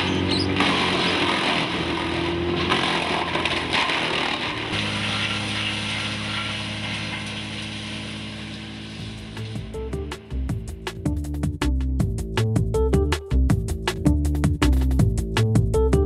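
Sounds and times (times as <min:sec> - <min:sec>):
wood chipper grinding branches: 0:00.0 - 0:11.0.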